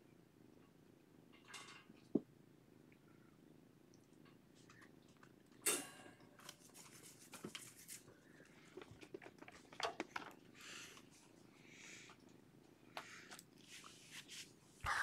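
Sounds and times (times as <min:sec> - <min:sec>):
small clicks and rustles: 0:03.9 - 0:11.4.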